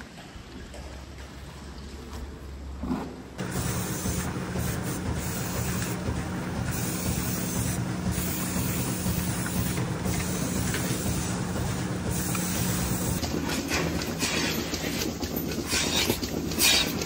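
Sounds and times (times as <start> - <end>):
low machine hum: 3.4 - 17.0
aerosol spray can hissing: 6.7 - 11.4, 12.1 - 13.2.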